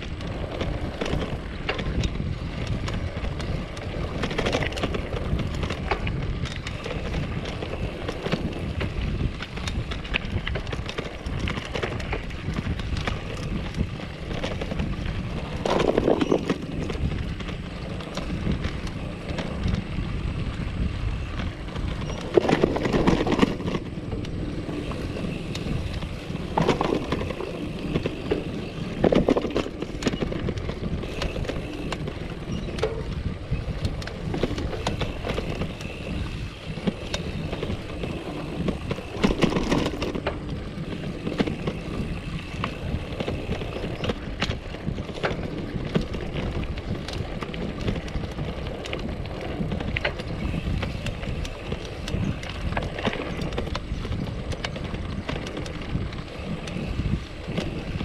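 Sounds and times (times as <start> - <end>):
bike clicking and rattling: 0.0 - 58.0
tyres rumbling on dirt: 0.0 - 58.0
wind on microphone: 0.0 - 58.0.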